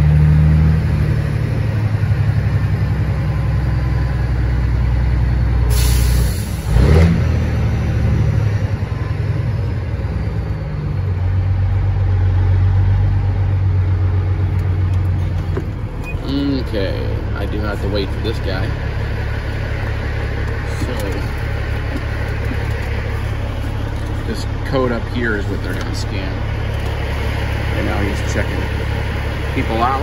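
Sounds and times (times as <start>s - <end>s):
truck diesel engine rumble: 0.0s - 30.0s
air brake hiss: 5.7s - 6.7s.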